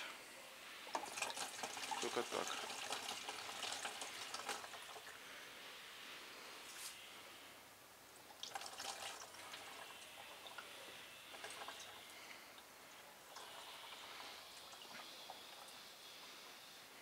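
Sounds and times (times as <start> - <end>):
liquid trickling and dripping: 0.9 - 5.2, 8.2 - 15.9.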